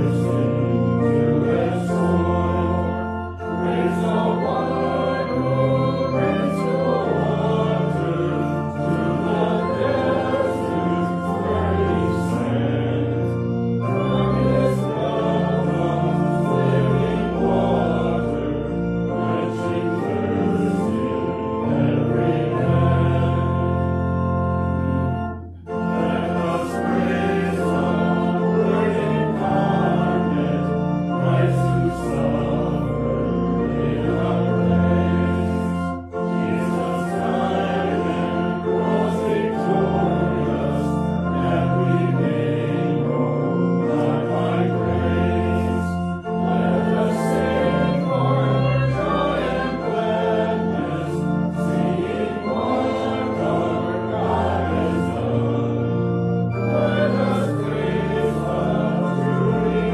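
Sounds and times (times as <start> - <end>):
congregation singing a hymn: 0.0 - 59.9
pipe organ: 0.0 - 59.9.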